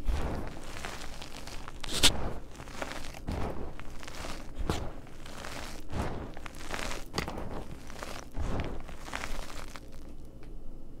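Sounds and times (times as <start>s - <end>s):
chalk crunching by hand: 0.0s - 10.3s
powder pouring: 0.0s - 10.3s.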